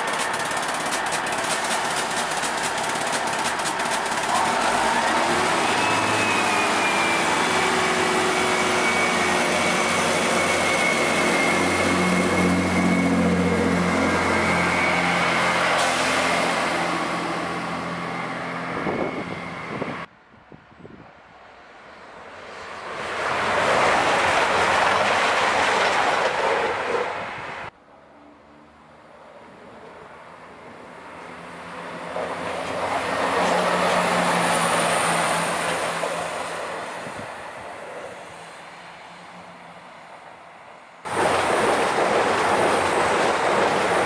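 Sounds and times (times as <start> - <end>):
diesel train engine running: 0.0 - 20.1, 29.2 - 44.0
thin whine: 0.0 - 20.1
train approaching rush: 0.0 - 44.0.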